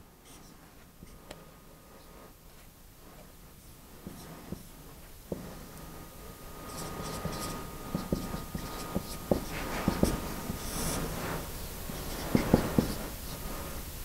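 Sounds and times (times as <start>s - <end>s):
marker writing on a whiteboard: 4.0s - 4.7s, 5.3s - 5.8s, 6.6s - 13.4s.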